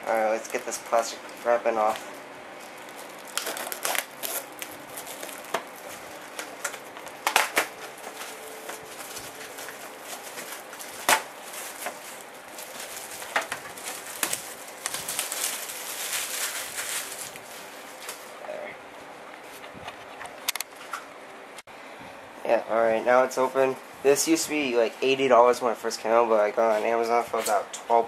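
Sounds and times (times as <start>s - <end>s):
plastic wrap crinkling: 0.1s - 18.4s
plastic wrap crackling and tearing: 2.6s - 18.3s.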